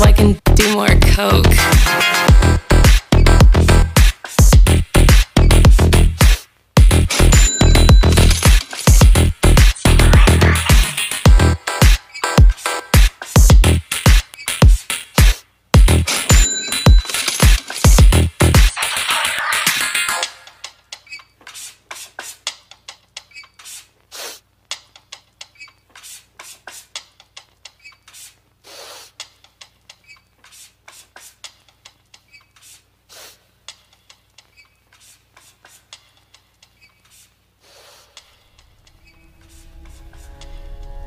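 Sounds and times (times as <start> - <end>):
vinyl record crackle: 18.6 - 20.7, 23.6 - 24.8.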